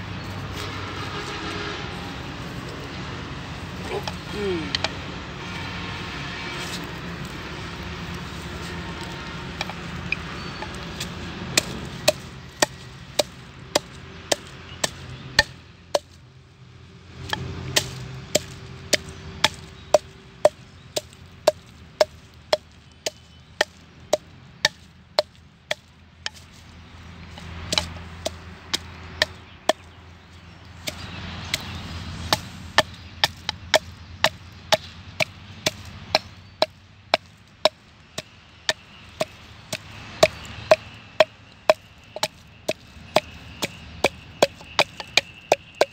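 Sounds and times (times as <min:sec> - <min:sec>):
wooden pestle pounding in mortar: 0:10.5 - 0:16.1, 0:17.3 - 0:26.6, 0:27.3 - 0:29.9, 0:30.8 - 0:45.9.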